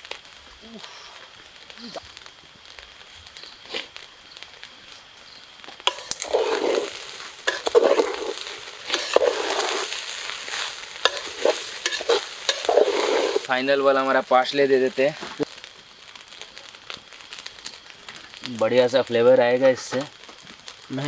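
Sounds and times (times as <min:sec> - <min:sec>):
rice sizzling: 0:00.0 - 0:21.0
metal spatula scraping pot: 0:05.9 - 0:13.5.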